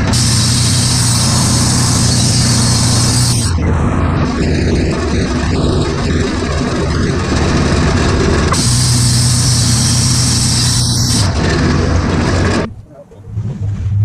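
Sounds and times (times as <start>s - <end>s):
sawmill engine droning: 0.0s - 12.7s
high hiss of band blade: 0.2s - 3.5s.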